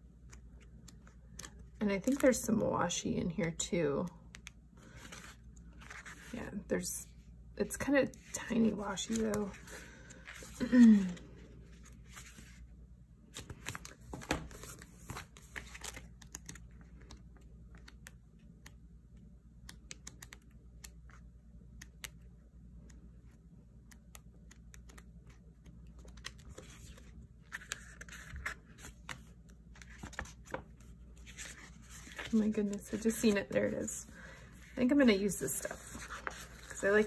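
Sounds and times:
paper rustling and crinkling: 4.8 - 6.4, 8.3 - 12.6, 13.3 - 17.9, 25.9 - 33.7, 34.5 - 37.0.

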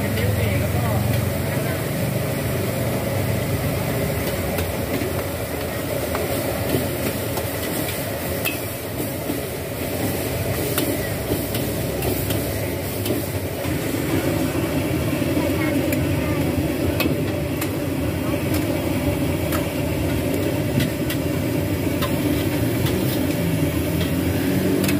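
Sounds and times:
gas burner roaring: 0.0 - 24.9
metal utensils clinking on wok: 7.0 - 8.8.

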